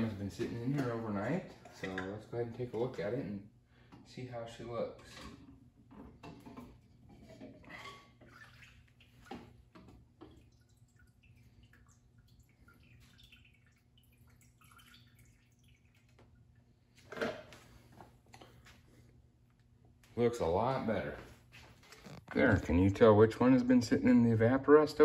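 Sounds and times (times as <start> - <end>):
liquid dripping and trickling: 8.2 - 16.9.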